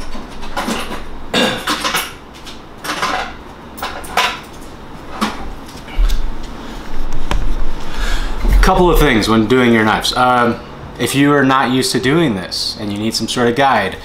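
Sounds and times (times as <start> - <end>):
kitchen items clattering: 0.0 - 5.6.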